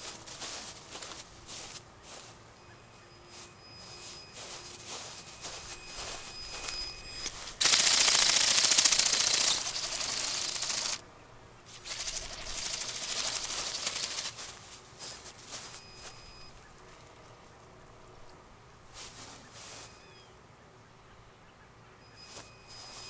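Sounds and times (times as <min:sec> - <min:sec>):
robotic bird wings flapping: 0:05.9 - 0:11.0, 0:11.7 - 0:14.6.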